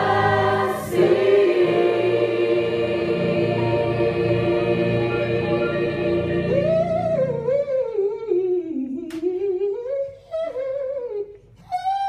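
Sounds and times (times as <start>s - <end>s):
gospel chord: 0.0s - 7.7s.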